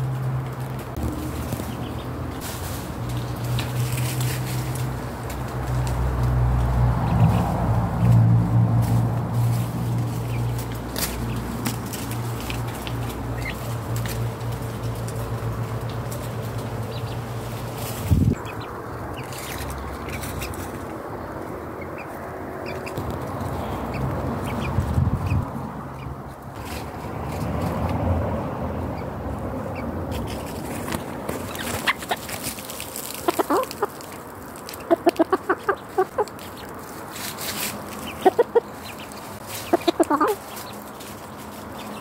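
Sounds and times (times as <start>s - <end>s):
rooster clucking: 33.1s - 34.1s, 34.8s - 36.8s, 37.8s - 40.9s.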